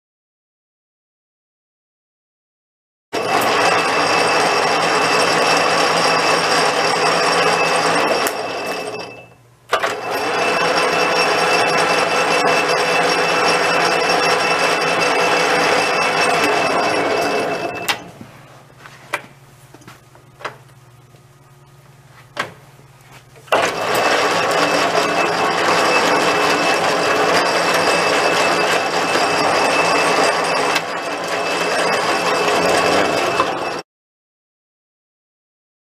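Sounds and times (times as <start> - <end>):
metal lathe whirring and whining: 3.2 - 18.1, 23.4 - 33.8.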